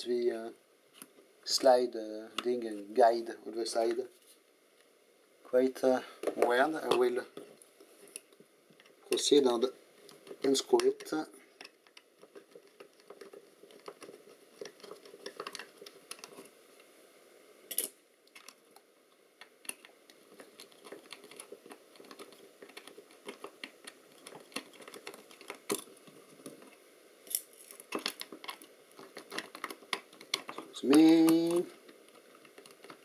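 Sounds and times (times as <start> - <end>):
screwdriver clicking and scraping: 27.3 - 31.4.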